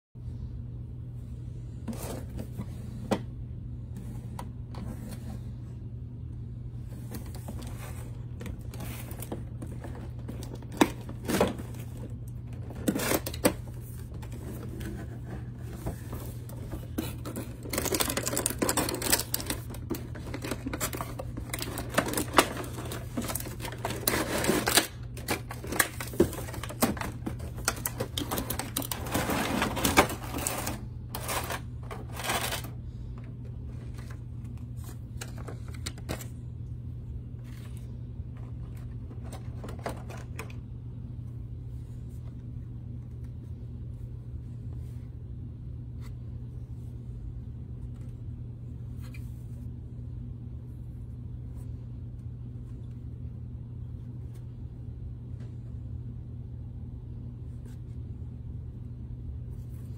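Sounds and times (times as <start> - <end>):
steady low hum: 0.2 - 59.9
cardboard scraping and rustling: 6.9 - 32.8.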